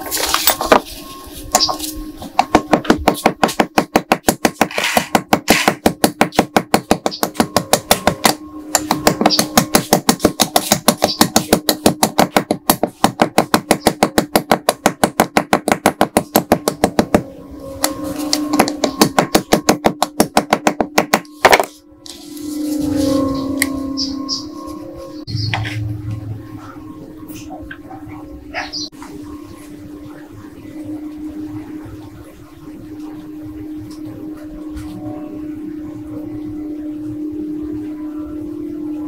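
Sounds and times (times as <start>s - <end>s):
hammer tapping on metal: 2.4s - 17.3s, 18.5s - 21.7s.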